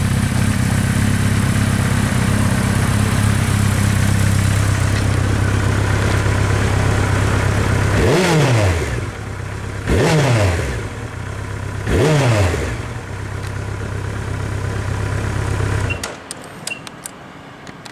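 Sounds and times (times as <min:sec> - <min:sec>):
motorcycle engine idling and revving: 0:00.0 - 0:16.5.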